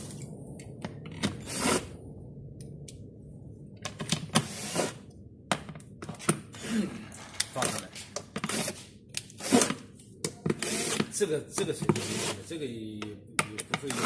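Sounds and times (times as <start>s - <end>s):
drill driving bolts: 10.5s - 11.1s, 11.9s - 12.4s.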